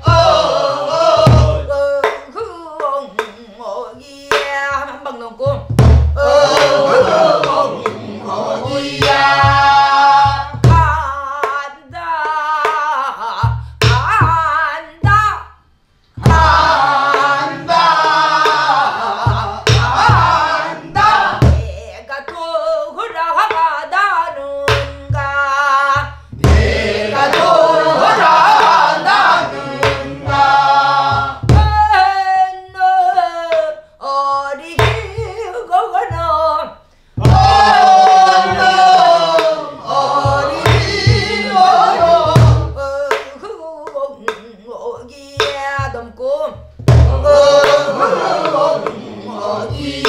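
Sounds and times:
barrel drum thumps: 0:01.1 - 0:02.2, 0:05.5 - 0:08.0, 0:08.6 - 0:11.1, 0:16.2 - 0:22.4, 0:26.0 - 0:32.0, 0:34.8 - 0:35.3, 0:37.2 - 0:39.6, 0:40.2 - 0:43.2, 0:45.4 - 0:49.0
woman singing folk song: 0:01.5 - 0:06.4, 0:10.4 - 0:15.5, 0:20.9 - 0:26.3, 0:31.5 - 0:36.9, 0:42.0 - 0:47.8.

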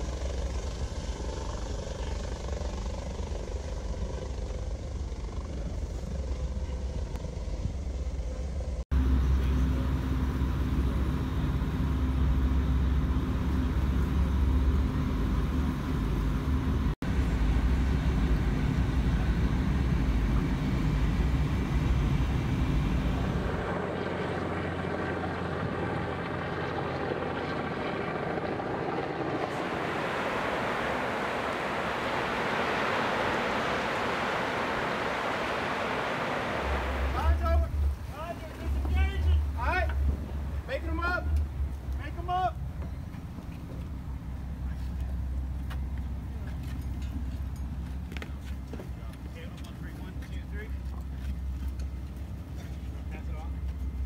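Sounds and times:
helicopter rotor: 0:00.0 - 0:45.3
deep boat engine rumble: 0:00.0 - 0:54.0
wind: 0:00.0 - 0:54.0
water noise: 0:11.7 - 0:40.7.

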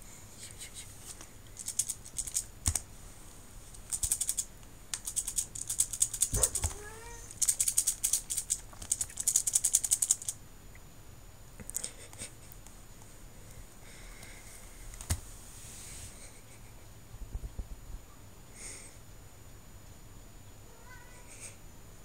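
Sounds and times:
abacus beads rattling: 0:01.6 - 0:02.8, 0:03.7 - 0:06.4, 0:07.3 - 0:10.4
cat meow: 0:06.4 - 0:07.3.

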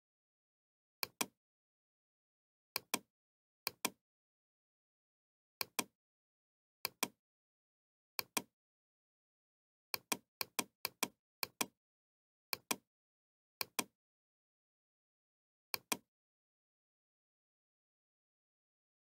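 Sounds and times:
computer mouse clicks: 0:02.8 - 0:03.1, 0:03.7 - 0:04.0, 0:05.6 - 0:05.9, 0:06.8 - 0:07.2, 0:10.0 - 0:11.8, 0:12.5 - 0:12.8, 0:13.6 - 0:13.9, 0:15.8 - 0:16.0.

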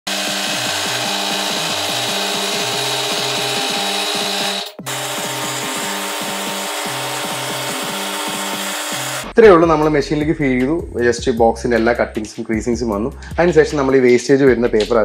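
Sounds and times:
background music with melodic bass: 0:04.3 - 0:15.0.

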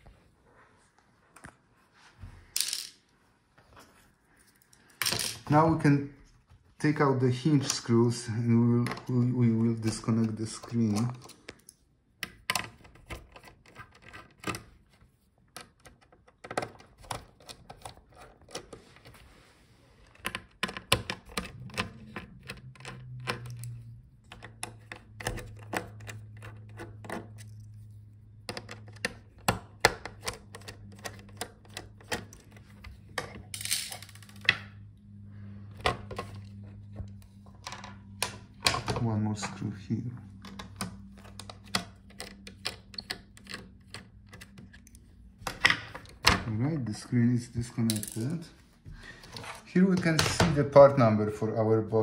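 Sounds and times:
low steady hum: 0:00.0 - 0:52.0.

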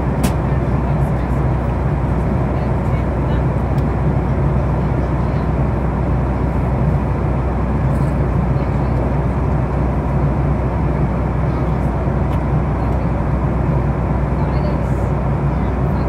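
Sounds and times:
air rushing along fuselage: 0:00.0 - 0:16.0
low drone of jet engines: 0:00.0 - 0:16.0.

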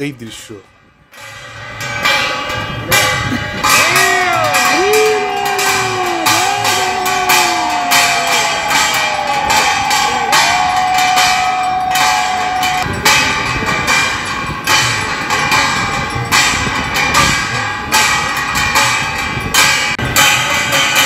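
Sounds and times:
bells ringing: 0:01.1 - 0:21.0
long held tone: 0:03.6 - 0:13.3.

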